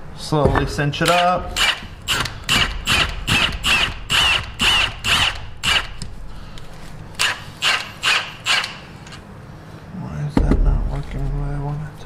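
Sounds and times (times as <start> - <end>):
impact wrench bursts: 1.0 - 6.1, 7.2 - 9.2.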